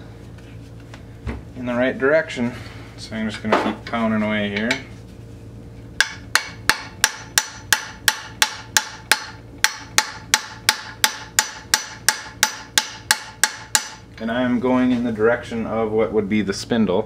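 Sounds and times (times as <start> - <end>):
brass hammering on metal shaft: 6.0 - 14.2.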